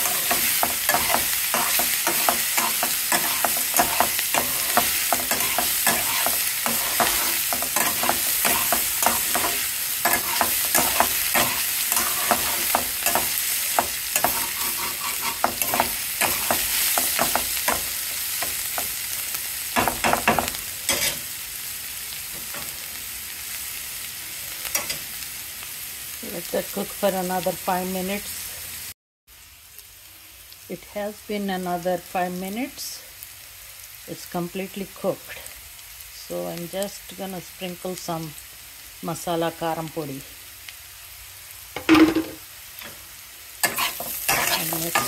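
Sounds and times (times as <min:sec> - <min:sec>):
metal spatula scraping a pan: 0:00.0 - 0:19.1, 0:19.8 - 0:21.3, 0:43.6 - 0:45.0
vegetables sizzling in oil: 0:00.0 - 0:45.0.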